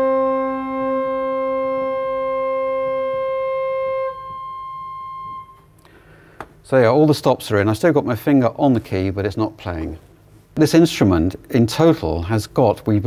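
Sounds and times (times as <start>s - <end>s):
pipe organ holding a note: 0.0s - 5.8s.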